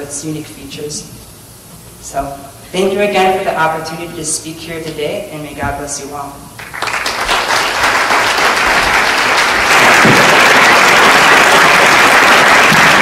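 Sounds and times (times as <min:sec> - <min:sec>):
audience applauding: 0:06.6 - 0:13.0.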